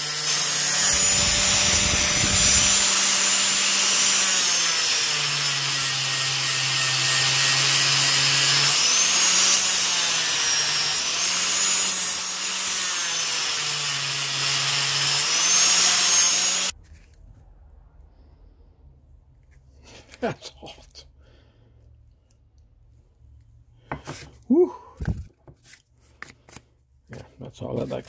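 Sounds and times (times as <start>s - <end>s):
angle grinder grinding steel: 0.0s - 16.7s.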